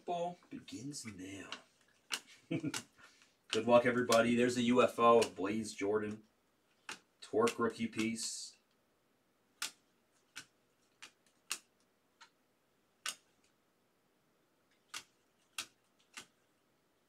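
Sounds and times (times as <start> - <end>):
trading cards clicking: 0.8 - 8.4, 9.6 - 12.4, 13.0 - 13.5, 14.7 - 16.4.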